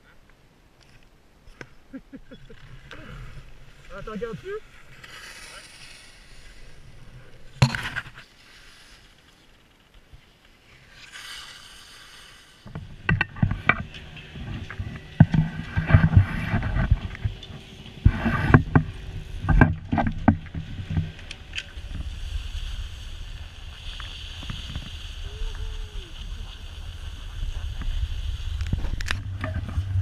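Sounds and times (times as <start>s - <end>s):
wind noise on microphone: 12.6s - 30.0s.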